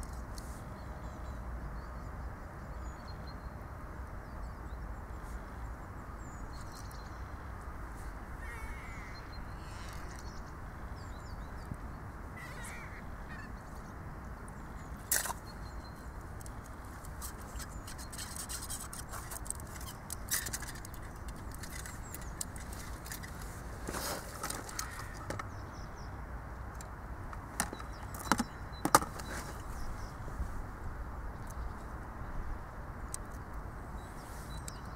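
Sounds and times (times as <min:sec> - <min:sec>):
steady low background noise: 0:00.0 - 0:34.9
clicks of fishing tackle: 0:15.1 - 0:15.4, 0:16.4 - 0:23.5.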